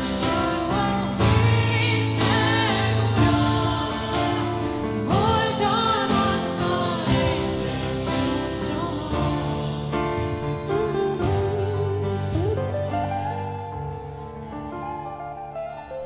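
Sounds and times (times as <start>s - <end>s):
person singing: 0.0s - 13.8s
keyboard chords: 0.0s - 16.0s
strummed guitars: 0.0s - 16.0s.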